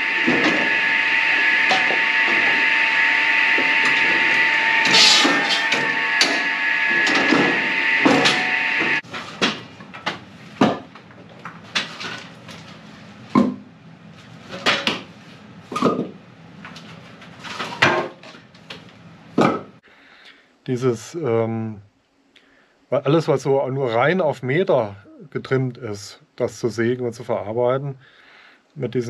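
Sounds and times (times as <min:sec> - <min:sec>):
log saw whining: 0:00.0 - 0:09.1.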